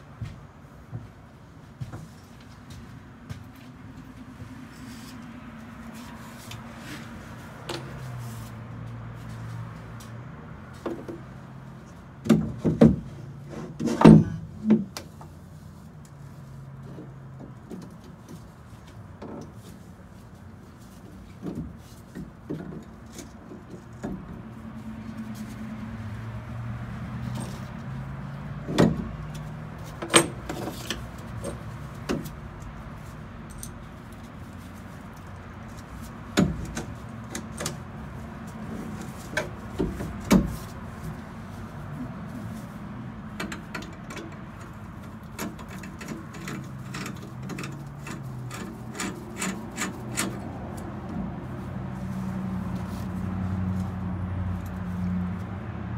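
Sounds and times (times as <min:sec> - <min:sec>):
metallic clicks and knocks: 0:43.3 - 0:51.2.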